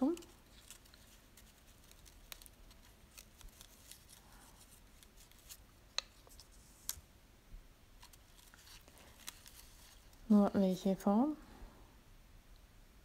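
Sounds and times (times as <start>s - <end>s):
paper labels clicking: 0.0s - 4.2s.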